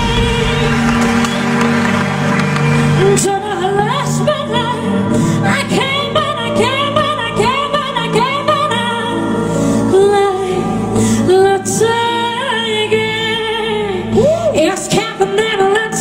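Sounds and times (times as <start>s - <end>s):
woman singing into a microphone: 0.0s - 1.0s, 3.0s - 16.0s
live band playing: 0.0s - 4.2s.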